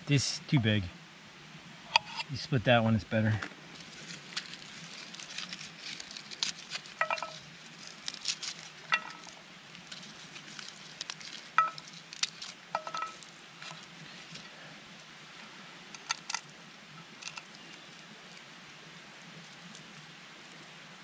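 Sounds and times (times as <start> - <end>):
garlic skins crinkling: 3.7 - 14.6, 16.0 - 18.4.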